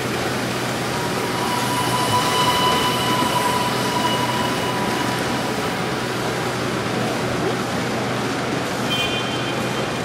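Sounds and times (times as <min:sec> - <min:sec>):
miniature train running on track: 0:00.0 - 0:10.0
thin high squeal: 0:01.0 - 0:06.0.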